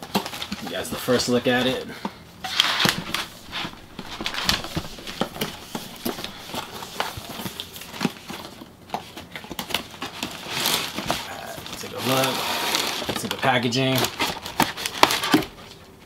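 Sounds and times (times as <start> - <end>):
cardboard scraping rustles: 2.5 - 9.2.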